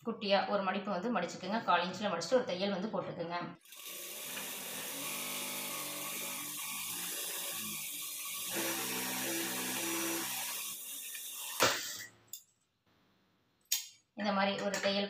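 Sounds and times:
sewing machine running: 0:03.6 - 0:11.6.

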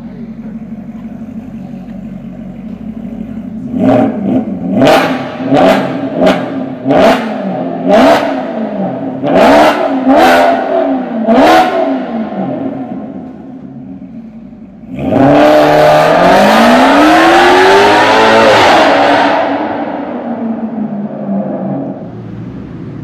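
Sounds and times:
car engine idling and revving: 0:00.0 - 0:23.0.

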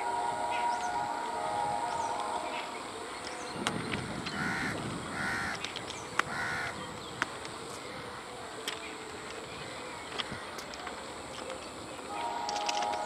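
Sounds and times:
train horn: 0:00.0 - 0:03.6, 0:12.0 - 0:13.0
crow cawing: 0:04.4 - 0:05.6, 0:06.3 - 0:06.8.

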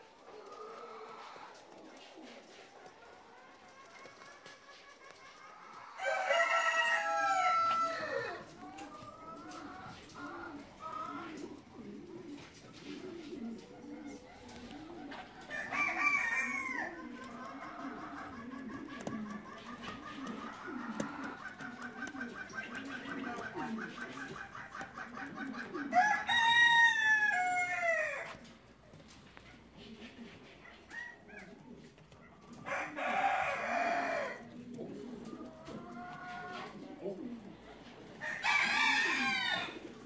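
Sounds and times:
pigeons cooing: 0:00.0 - 0:40.0
rooster crowing: 0:06.0 - 0:08.4, 0:15.5 - 0:16.9, 0:25.9 - 0:28.3, 0:32.7 - 0:34.4, 0:38.2 - 0:39.9.

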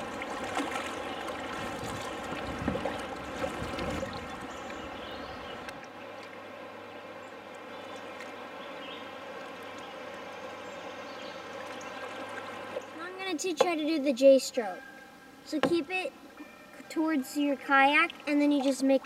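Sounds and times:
paddle splashing in water: 0:00.0 - 0:06.4.

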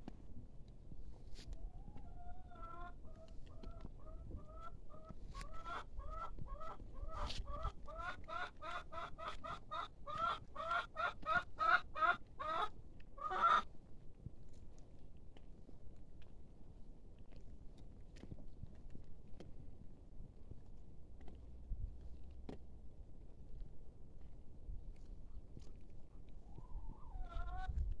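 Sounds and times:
chicken squawking: 0:01.6 - 0:13.6, 0:26.4 - 0:27.8
chicken clucking: 0:01.6 - 0:13.7, 0:26.4 - 0:27.9.

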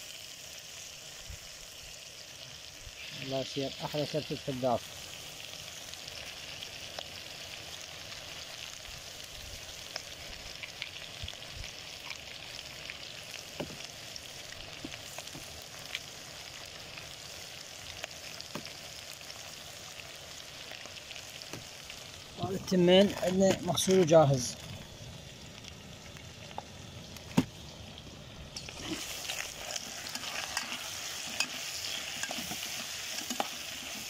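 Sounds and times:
meat and vegetables sizzling in a pot: 0:00.0 - 0:34.0.

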